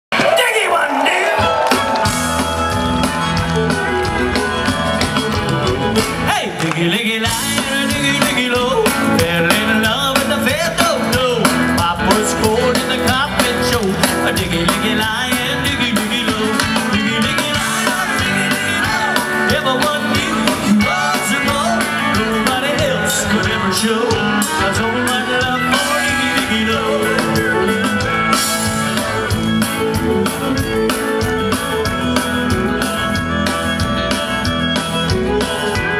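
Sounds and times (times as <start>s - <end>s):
country band playing: 0.1s - 35.9s
man singing into microphone: 6.2s - 28.1s.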